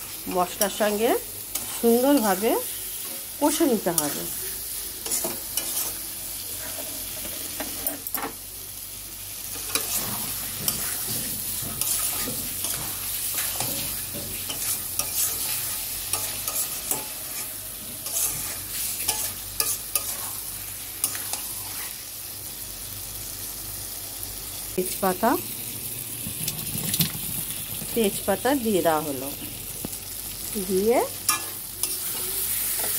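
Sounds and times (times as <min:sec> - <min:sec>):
food sizzling in a pan: 0:00.0 - 0:32.9
spatula scraping a metal pan: 0:05.0 - 0:08.1, 0:09.6 - 0:22.0, 0:31.3 - 0:32.9.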